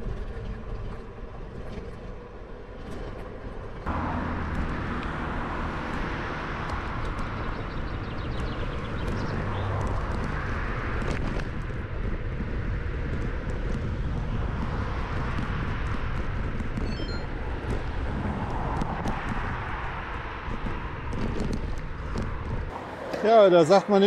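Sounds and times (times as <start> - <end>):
bicycle tyre and road noise: 0.0 - 24.0
wind on microphone: 4.4 - 22.8.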